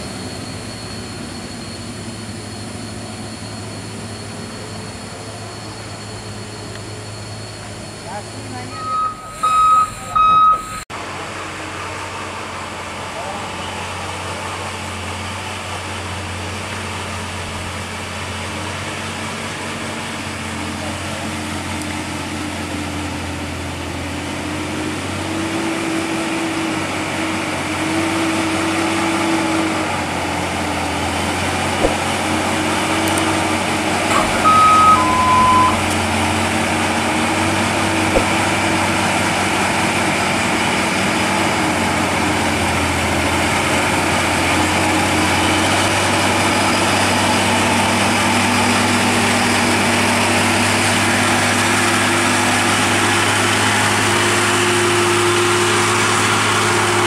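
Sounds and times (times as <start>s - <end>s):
truck diesel engine under load: 0.0s - 57.0s
two-note electronic chime: 8.7s - 10.6s, 34.1s - 35.9s.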